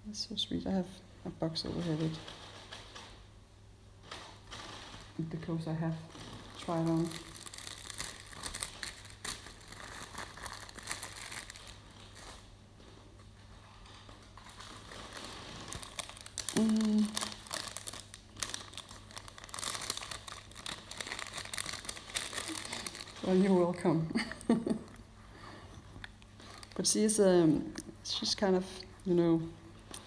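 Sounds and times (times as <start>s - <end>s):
packaging crinkling: 4.0s - 23.8s, 26.0s - 27.9s.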